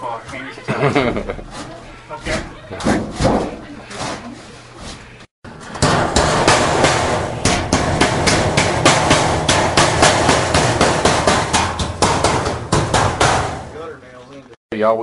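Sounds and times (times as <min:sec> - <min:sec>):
hammer striking sheet metal: 0:05.5 - 0:13.9.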